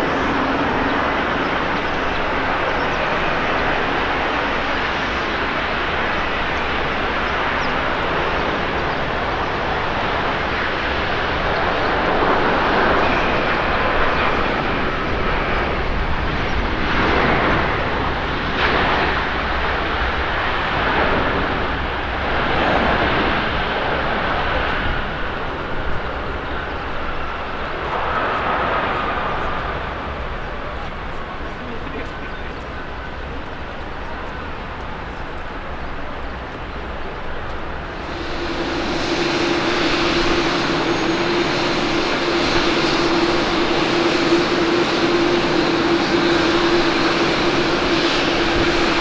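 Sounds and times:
jet airliner landing roar: 0:00.0 - 0:49.0
faint engine whine: 0:20.6 - 0:49.0.

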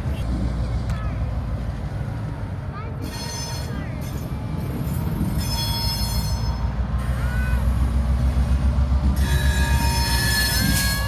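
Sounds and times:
diesel locomotives rumbling: 0:00.0 - 0:11.0
steel wheel squeal: 0:03.0 - 0:07.8, 0:09.1 - 0:11.0.

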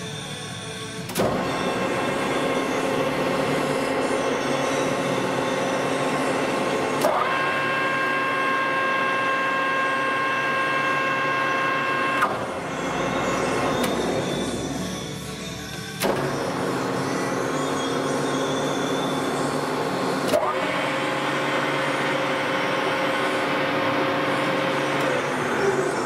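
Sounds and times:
steady whine: 0:00.0 - 0:26.0
lathe running: 0:01.2 - 0:26.0.

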